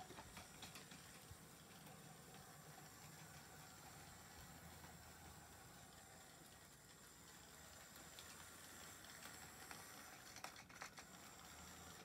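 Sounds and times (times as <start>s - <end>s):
model train humming: 0.0s - 12.0s.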